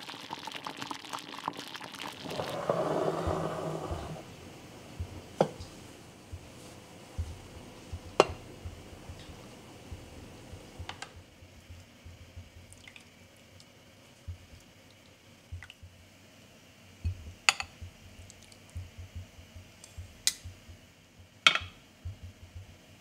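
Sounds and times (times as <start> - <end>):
soft low bumps and rustling: 3.2 - 12.6.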